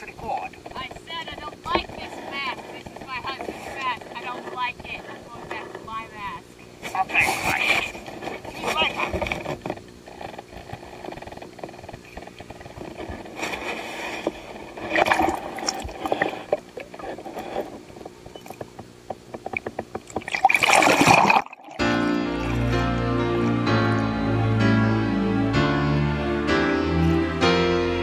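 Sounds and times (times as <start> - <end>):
water splashing and sloshing: 7.6 - 24.9.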